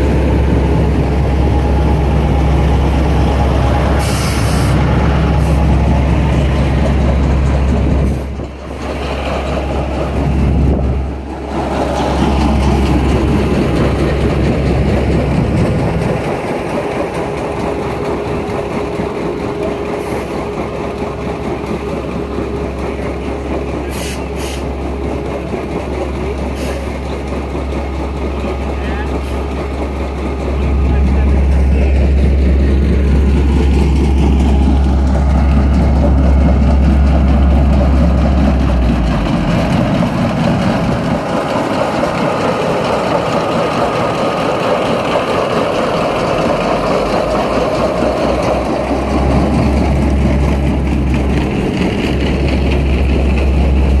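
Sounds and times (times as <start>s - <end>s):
diesel truck engine rumbling: 0.0s - 54.0s.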